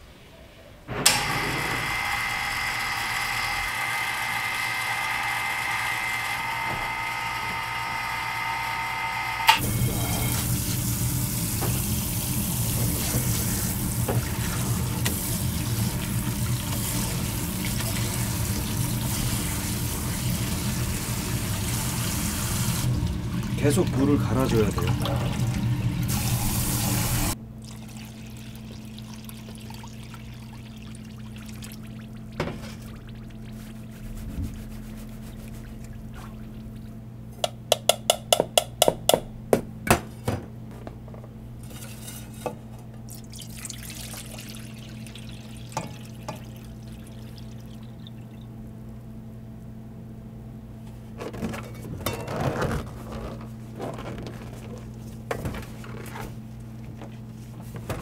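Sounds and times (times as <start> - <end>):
low electrical hum: 0.0 - 58.0
starch rustling in metal tray: 33.5 - 35.9.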